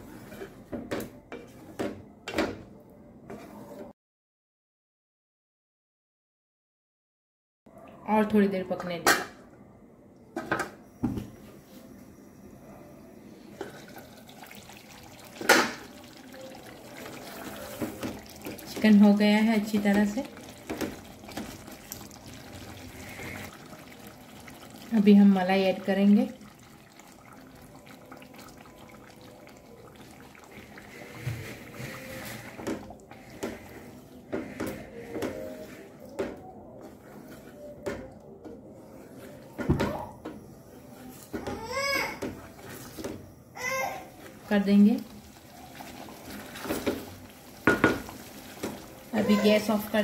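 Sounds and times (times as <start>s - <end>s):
gravy simmering with faint bubbling: 13.5s - 40.0s, 41.1s - 50.0s
spatula scraping pot: 30.4s - 36.1s.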